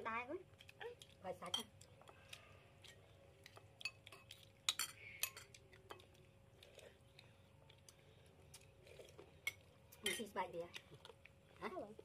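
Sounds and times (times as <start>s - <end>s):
spoons clinking on ceramic bowls: 3.8s - 6.0s, 9.4s - 10.4s.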